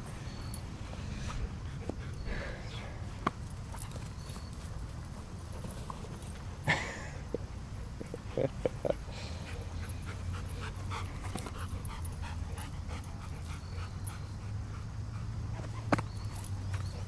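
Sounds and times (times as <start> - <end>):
steady low hum: 0.0 - 17.0
dog panting: 7.9 - 17.0.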